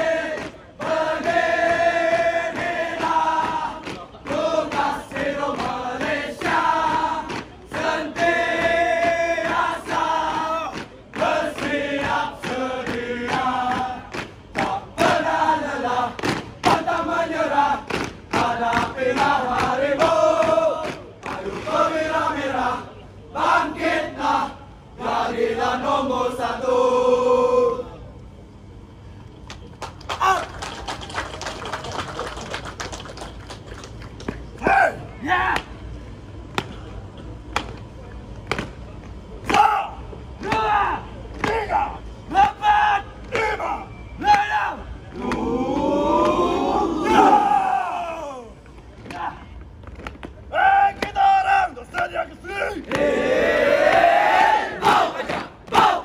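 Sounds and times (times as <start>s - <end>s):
men chanting in unison: 0.0s - 28.0s, 39.5s - 48.5s, 50.5s - 56.0s
group shouting: 39.5s - 48.5s.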